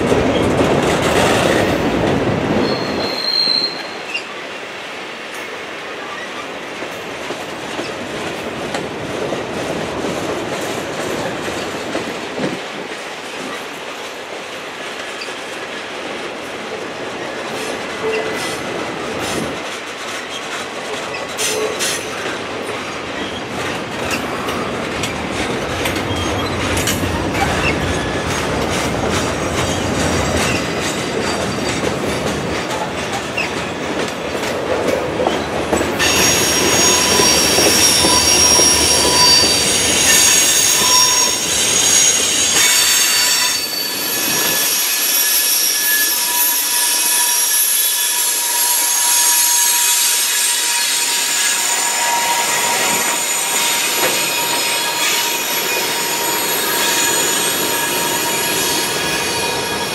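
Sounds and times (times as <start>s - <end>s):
train wheels rumbling and clicking: 0.0s - 59.9s
high-pitched wheel squeal: 2.6s - 4.2s, 36.0s - 59.9s.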